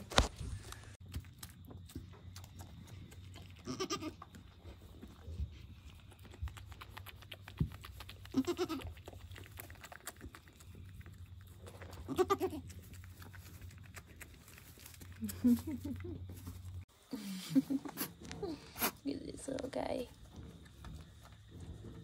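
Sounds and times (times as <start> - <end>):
goat kid bleating: 3.6 - 4.2, 8.3 - 9.0, 12.0 - 12.6.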